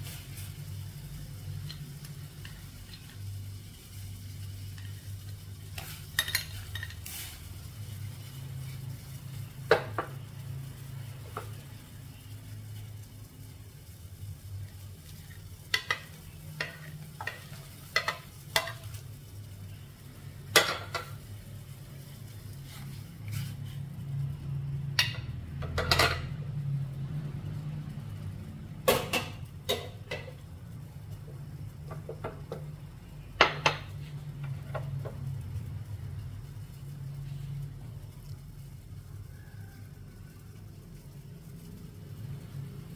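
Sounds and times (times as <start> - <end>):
utensils clinking against metal pot: 4.8 - 7.2, 15.3 - 18.9, 25.0 - 26.4, 28.9 - 30.4.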